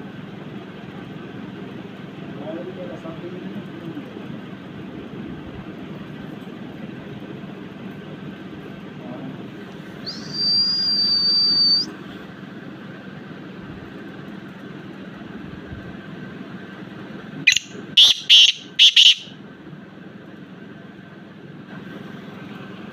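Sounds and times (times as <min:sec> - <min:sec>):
high whistle: 0:10.0 - 0:11.9, 0:17.5 - 0:19.3
bird harsh calls: 0:10.1 - 0:11.9, 0:17.5 - 0:19.3.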